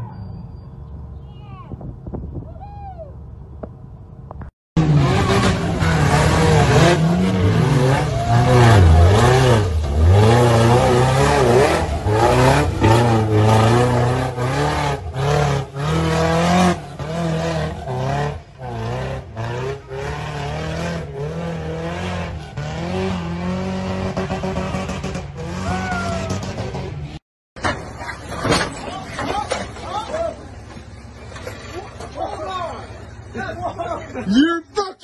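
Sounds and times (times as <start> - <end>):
truck engine revving hard: 4.8 - 27.2
tires spinning and flinging mud: 4.8 - 34.3.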